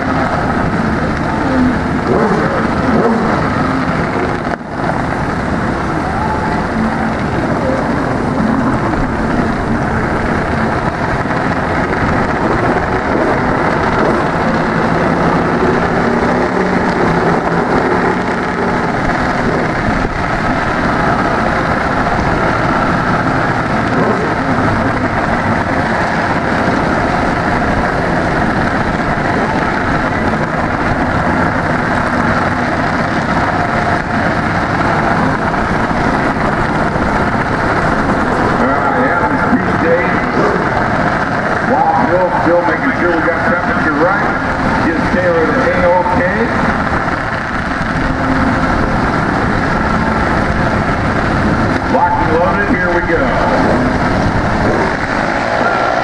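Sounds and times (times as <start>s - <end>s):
dragster engines idling: 0.0s - 56.0s.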